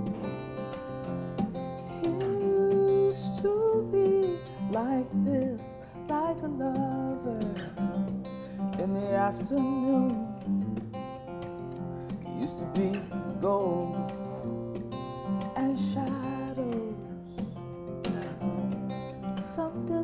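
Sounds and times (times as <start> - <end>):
acoustic guitar strumming: 0.0 - 20.0
woman singing: 1.8 - 10.5, 15.4 - 20.0.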